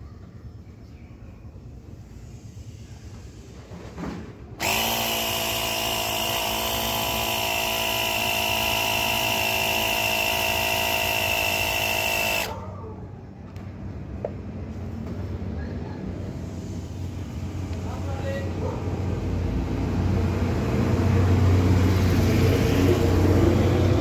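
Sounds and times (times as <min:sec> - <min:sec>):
air compressor buzzing hum: 0:04.6 - 0:12.6.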